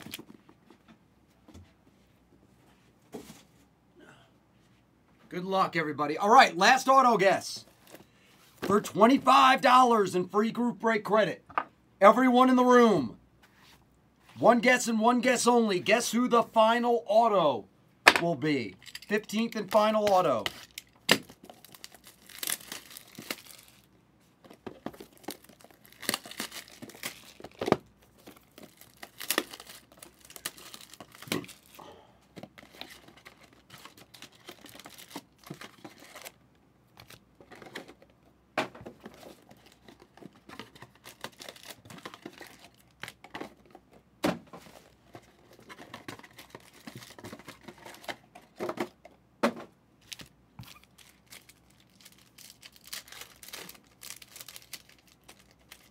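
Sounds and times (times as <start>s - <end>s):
foil packs handled: 19.1s - 23.9s, 24.5s - 31.8s, 32.4s - 36.4s, 39.0s - 43.6s, 50.0s - 55.9s
plastic shrink-wrap tearing: 20.5s - 23.9s, 25.0s - 31.8s, 50.1s - 55.9s.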